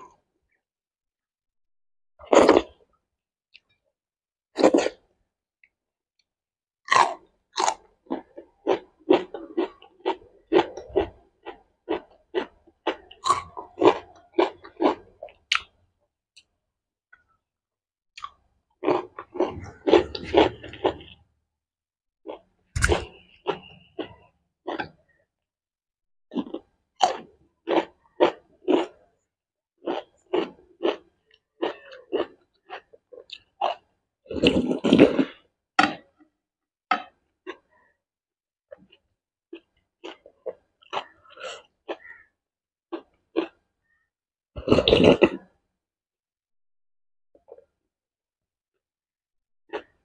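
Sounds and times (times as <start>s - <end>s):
slurping soup from a spoon: 18.9s - 21.3s, 34.3s - 35.6s, 44.6s - 45.5s.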